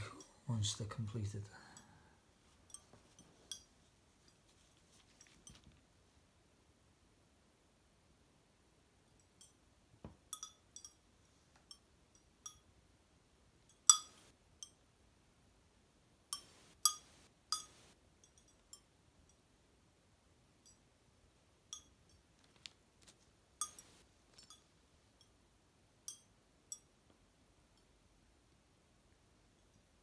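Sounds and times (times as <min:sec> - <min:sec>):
ceramic tiles pinging: 0:13.8 - 0:14.3, 0:16.4 - 0:18.9.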